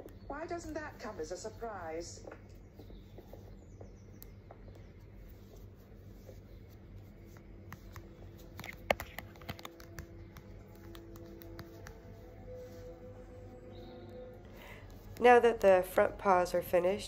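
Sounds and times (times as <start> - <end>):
knitting needles clicking: 7.3 - 12.2.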